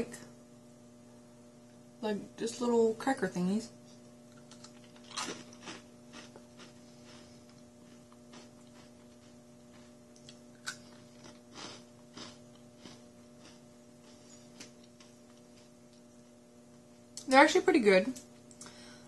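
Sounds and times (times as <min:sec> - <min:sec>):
crackers crunching: 0:04.0 - 0:16.2.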